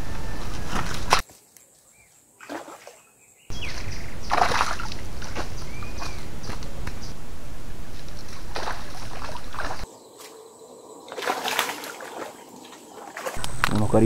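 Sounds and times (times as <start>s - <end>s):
splash in shallow water: 2.4s - 7.1s, 7.9s - 9.9s, 11.1s - 13.4s
steady low rumble: 3.6s - 9.8s.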